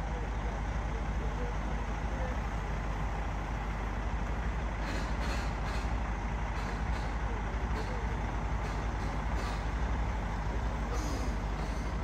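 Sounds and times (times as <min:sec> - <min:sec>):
diesel truck idling: 0:00.0 - 0:12.0.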